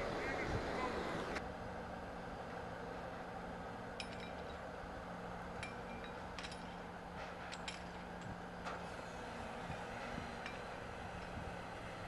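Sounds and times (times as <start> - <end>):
low machinery hum: 0.0 - 12.0
light metallic clinks: 4.0 - 4.7, 5.6 - 8.4, 10.4 - 11.5.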